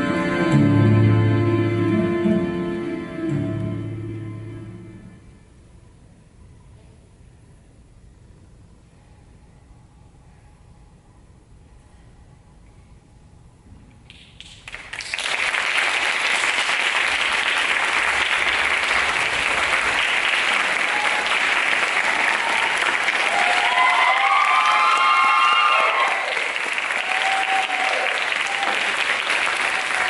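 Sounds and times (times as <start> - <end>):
audience clapping: 14.1 - 30.0
voices cheering: 20.4 - 30.0.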